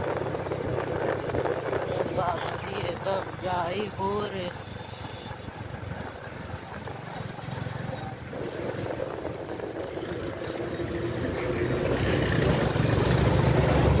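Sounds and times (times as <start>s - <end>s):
vehicle engine rumbling: 0.0s - 14.0s.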